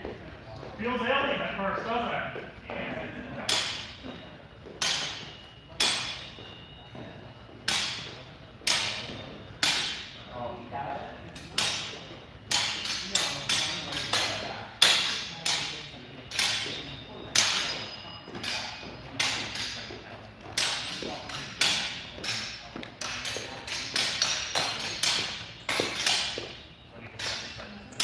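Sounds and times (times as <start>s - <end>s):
swords striking targets: 3.5s - 4.0s, 4.8s - 6.3s, 7.7s - 10.2s, 11.4s - 19.9s, 20.6s - 26.5s, 27.2s - 28.0s.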